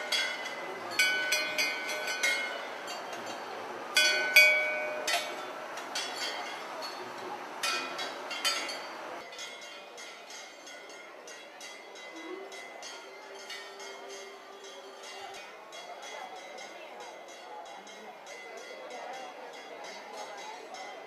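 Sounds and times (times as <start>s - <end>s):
brass bells clanging: 0.0s - 16.6s.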